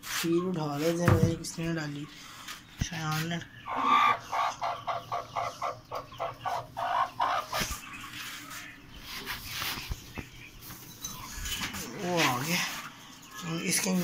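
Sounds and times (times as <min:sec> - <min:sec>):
hen clucking rapidly: 0:02.9 - 0:09.7.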